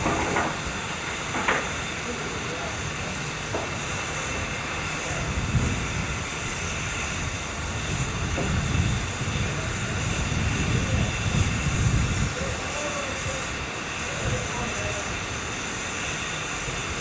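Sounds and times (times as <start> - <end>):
steam hissing from locomotive: 0.0 - 17.0
wind rumbling on microphone: 3.5 - 15.0.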